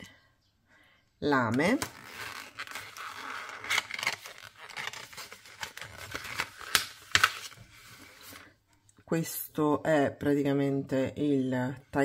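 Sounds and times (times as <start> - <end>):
plastic packaging crinkling: 1.6 - 8.4.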